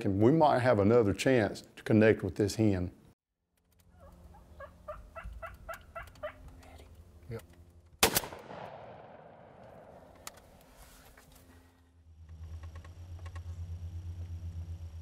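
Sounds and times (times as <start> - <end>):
gunshot echo: 8.0 - 10.2
low pulsing hum: 11.3 - 15.0.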